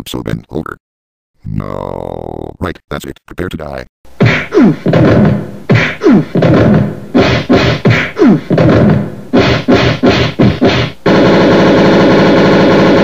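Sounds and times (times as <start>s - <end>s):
vocal grunts and cries: 1.4s - 2.6s, 4.2s - 10.8s
beating sounds: 4.2s - 13.0s.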